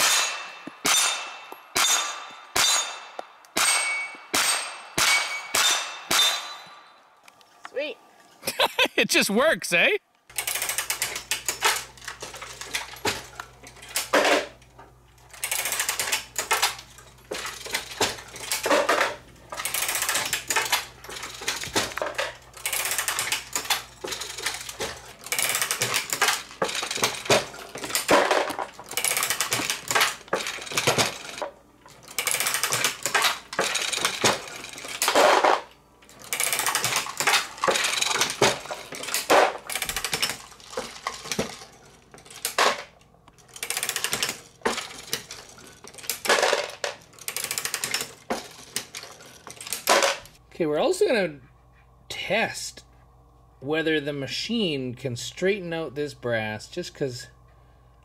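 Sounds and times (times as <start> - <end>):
reloading press clinking and rattling: 0.0 - 6.9, 15.3 - 50.4.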